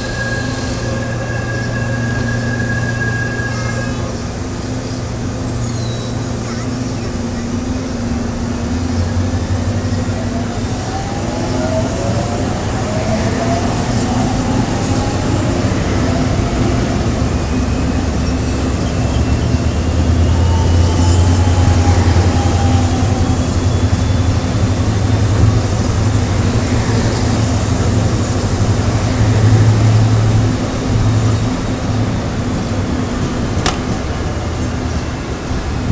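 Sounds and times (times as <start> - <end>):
train traction motors whining: 0.0 - 35.8
wheels rumbling on rail: 0.0 - 35.9
sharp click: 33.6 - 34.0.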